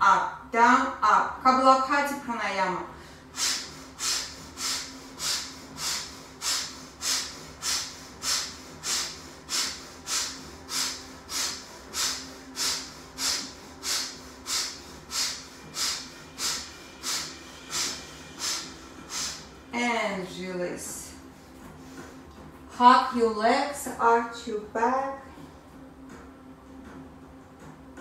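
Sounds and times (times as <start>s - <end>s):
quiet inhalations: 3.0s - 19.7s
forceful nasal exhalations: 3.4s - 19.6s.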